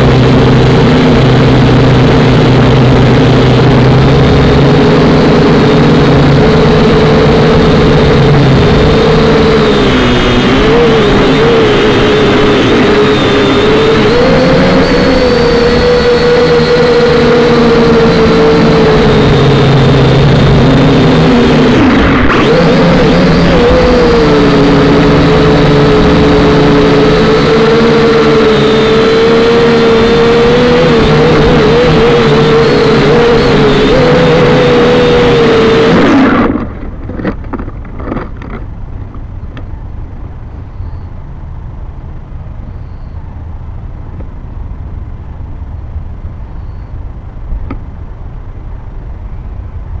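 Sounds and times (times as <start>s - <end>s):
model aircraft motor whining: 0.0s - 38.7s.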